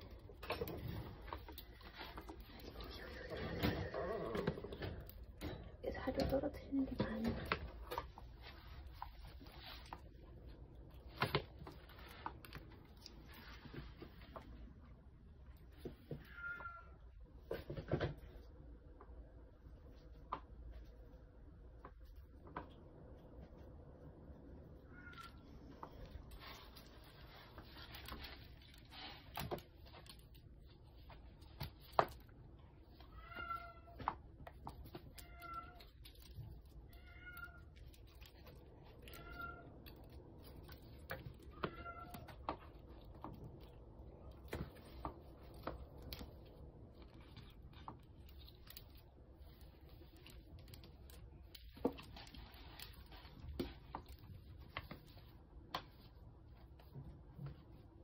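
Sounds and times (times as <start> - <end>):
kitten meowing: 16.3 - 17.0, 36.9 - 37.7, 39.0 - 39.7, 41.5 - 42.3.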